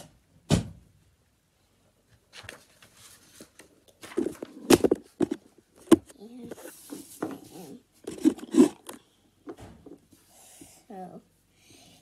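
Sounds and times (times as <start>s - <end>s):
handling clicks and knocks: 4.2s - 6.1s.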